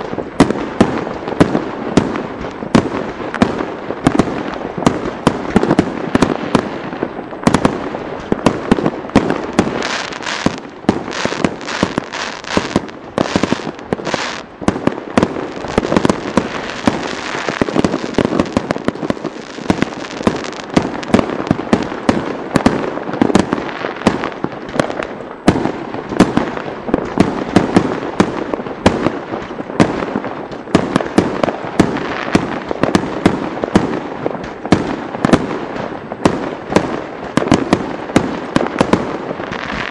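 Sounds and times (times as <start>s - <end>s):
fireworks bangs and crackles: 0.0s - 39.9s
fireworks hiss: 9.1s - 22.2s, 38.5s - 39.9s.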